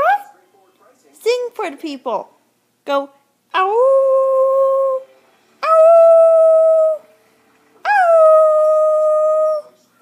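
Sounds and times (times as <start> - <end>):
puppy howling: 5.6 - 7.0, 7.8 - 9.8.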